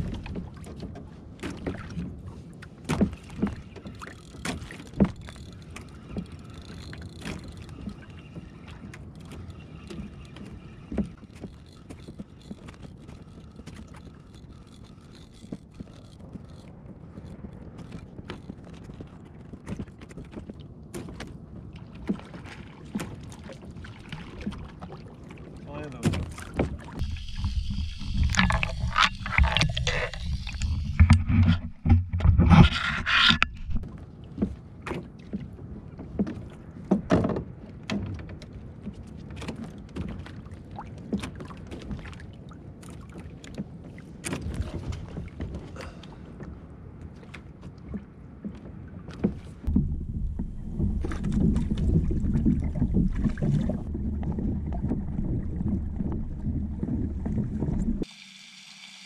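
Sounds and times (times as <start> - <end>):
water and wind noise: 0.0 - 59.0
fishing tackle clicking and knocking: 27.0 - 33.8.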